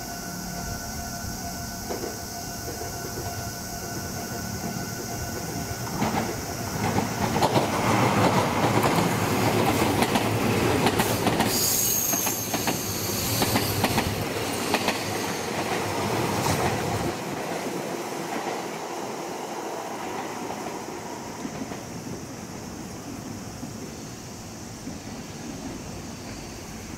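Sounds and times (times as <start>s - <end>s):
electric train passing: 0.0s - 26.9s
high wheel squeal: 11.0s - 16.0s.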